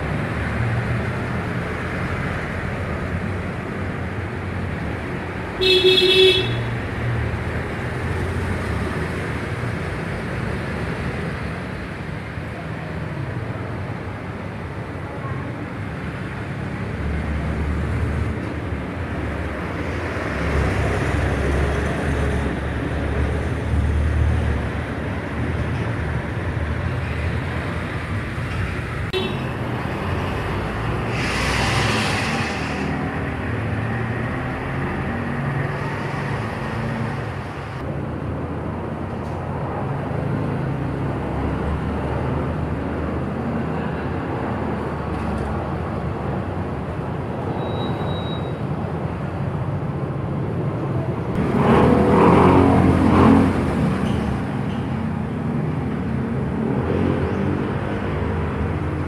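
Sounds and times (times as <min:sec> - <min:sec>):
hiss: 0:30.9 - 0:33.1.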